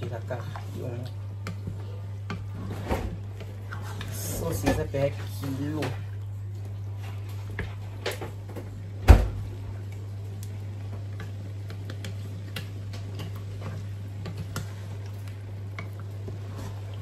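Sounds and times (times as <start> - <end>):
wooden spatula scraping a pot: 2.3 - 6.1, 16.2 - 17.0.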